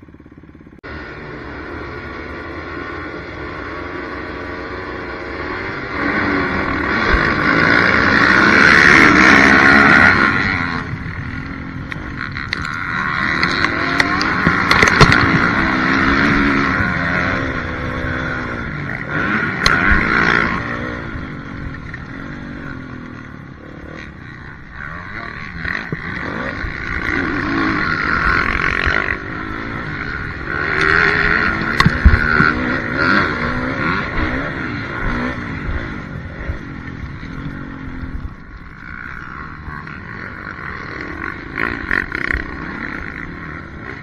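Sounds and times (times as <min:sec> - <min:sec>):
motocross bike engine revving: 0:00.0 - 0:44.0.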